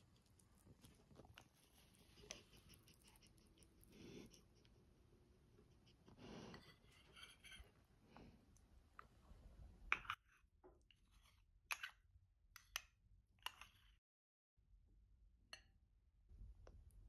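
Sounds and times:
spoon scraping ceramic dish: 5.8s - 7.8s, 11.1s - 12.0s.

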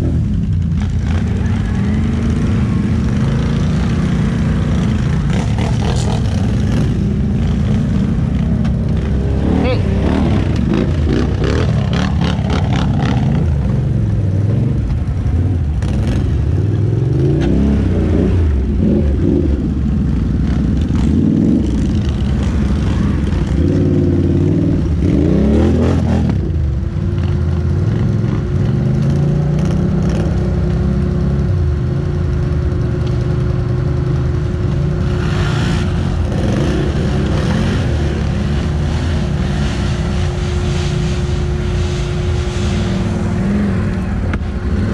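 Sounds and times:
atv engine revving: 0.0s - 44.9s.

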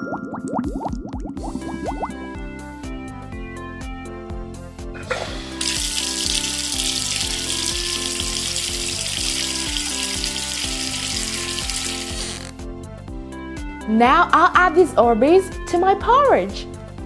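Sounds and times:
background music with steady beat: 0.6s - 17.0s
water running from faucet: 5.2s - 12.5s.

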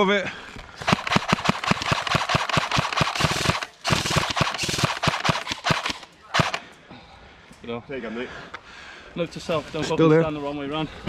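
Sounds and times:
airsoft rifle firing full auto: 0.8s - 6.7s.

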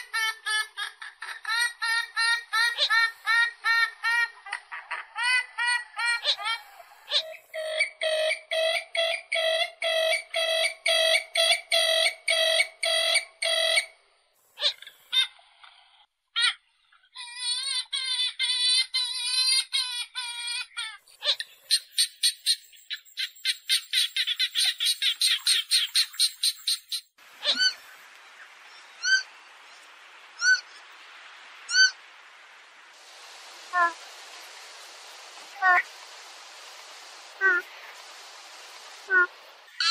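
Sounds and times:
bird calls repeated: 7.1s - 13.9s, 21.2s - 27.9s
high bird chirps: 21.3s - 27.8s.

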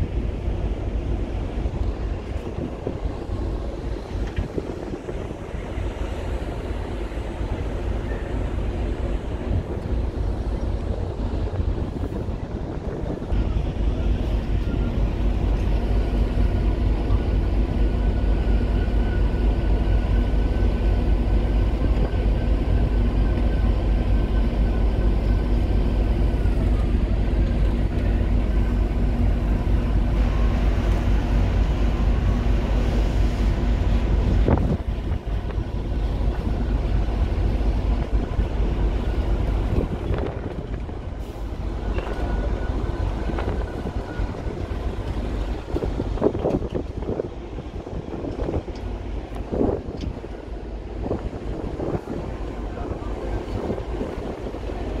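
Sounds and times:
wind rumbling on microphone: 0.0s - 55.0s.

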